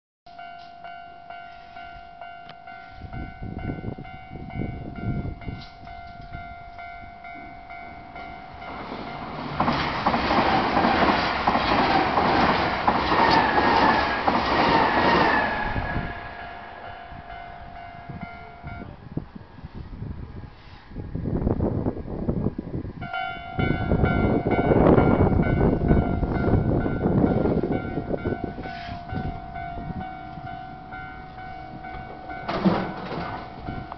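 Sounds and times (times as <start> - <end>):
crossing warning bell ringing: 0.3 - 19.4, 23.0 - 33.9
train wheels clattering on rails: 8.6 - 16.8, 31.7 - 33.9.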